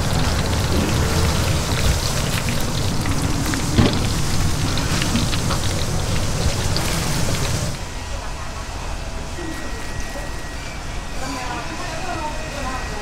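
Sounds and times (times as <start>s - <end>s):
hot oil sizzling in fryer: 0.0s - 7.8s.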